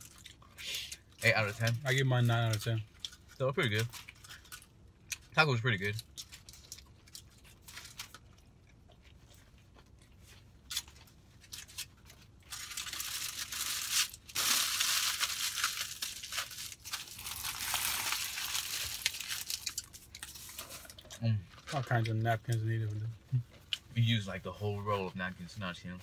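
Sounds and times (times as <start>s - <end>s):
foil wrapper crinkling: 10.6s - 22.1s.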